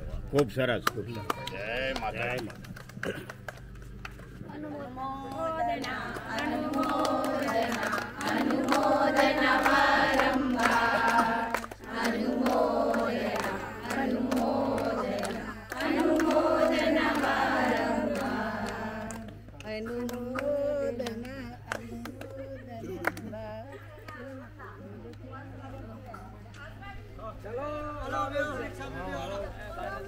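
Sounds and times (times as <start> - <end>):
group of voices chanting in unison: 5.8 - 19.2.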